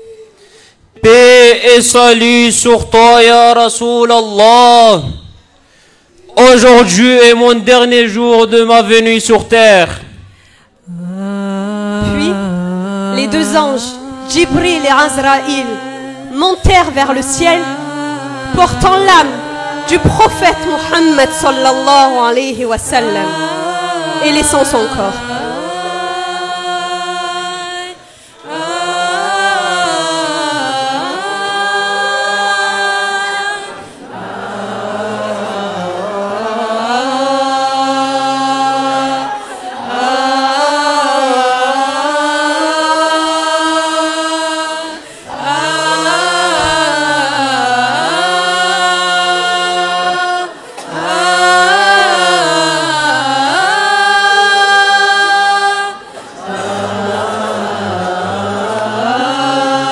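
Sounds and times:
person chanting unaccompanied: 10.8s - 59.9s.

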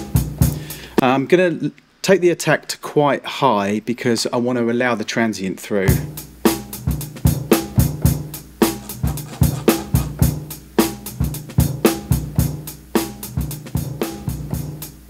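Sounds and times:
boom-bap drum break looping: 0.0s - 1.0s, 5.9s - 15.0s.

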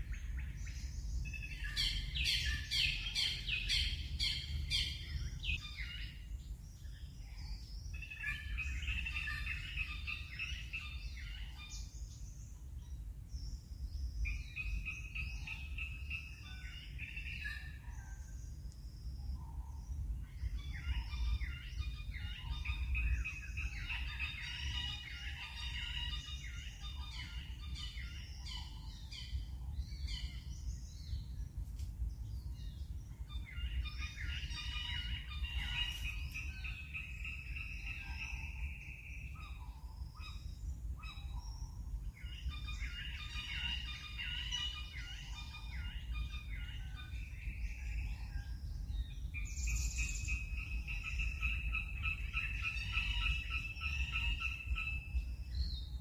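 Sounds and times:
birds chirping and trilling: 0.0s - 56.0s
low steady rumble: 0.0s - 56.0s.

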